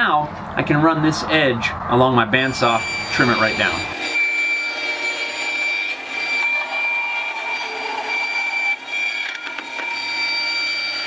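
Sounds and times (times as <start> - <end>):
bandsaw high whine: 2.4 - 11.0.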